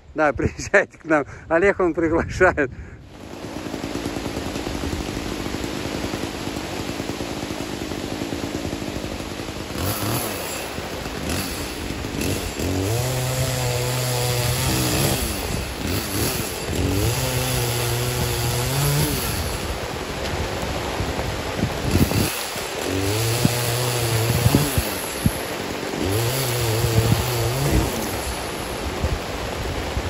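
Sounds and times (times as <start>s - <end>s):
small engine idling and revving: 3.1s - 30.0s.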